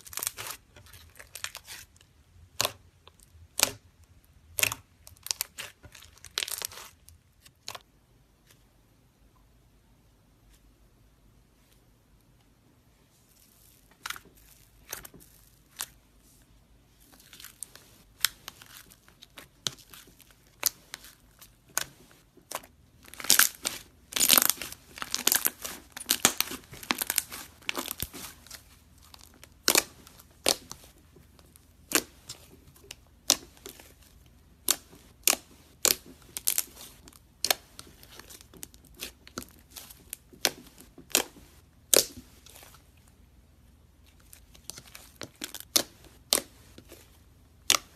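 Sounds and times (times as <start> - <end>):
slime crackling and popping: 0.0 - 3.8, 4.5 - 7.8, 17.2 - 42.8, 44.1 - 47.9.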